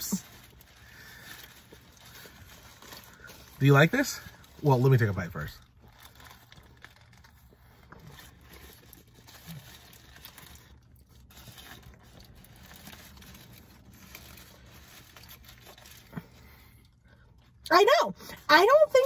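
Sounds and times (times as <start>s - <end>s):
paper wrapper crinkling: 0.0s - 16.7s
low steady hum: 0.0s - 19.0s
chewing: 5.8s - 13.2s.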